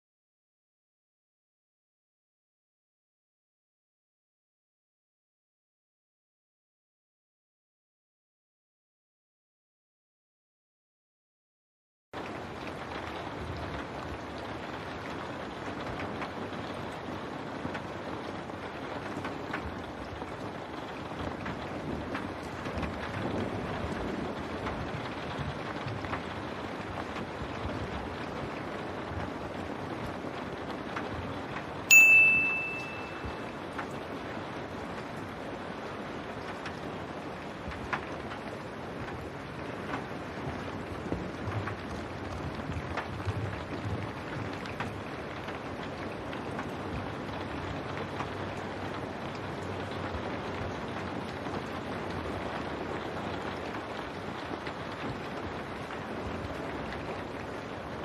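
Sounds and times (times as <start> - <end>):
rain on window glass: 12.2 - 58.0
high metallic ping: 31.9 - 33.4.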